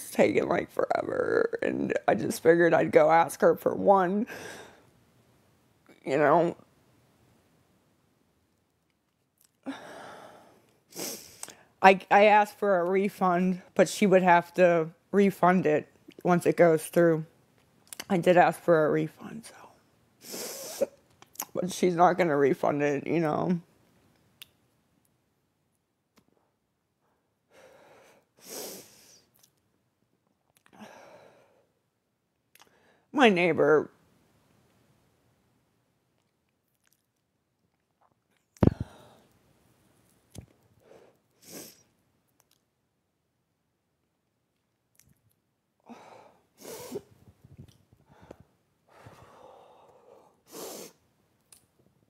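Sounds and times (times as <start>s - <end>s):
woman breathing close to microphone: 9.6s - 11.8s, 38.6s - 39.4s, 48.0s - 51.0s.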